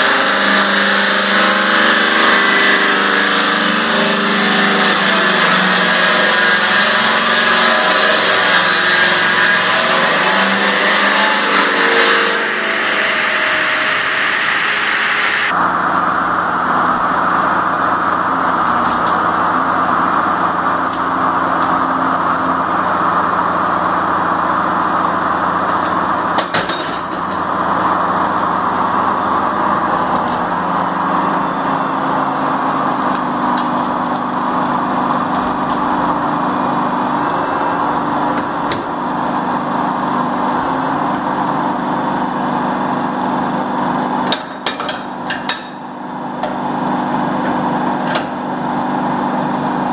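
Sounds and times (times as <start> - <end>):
circular saw cutting log: 0.0 - 15.8.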